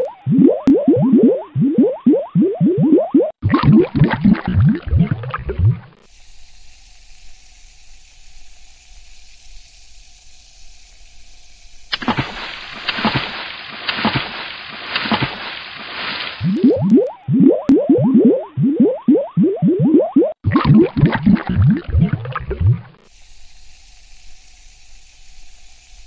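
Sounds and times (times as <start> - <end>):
water splashing and bubbling: 0.0 - 6.1, 11.8 - 23.1
fizzing splashes with crackling pops: 3.8 - 17.2
steady hiss: 6.0 - 16.4, 23.0 - 26.0.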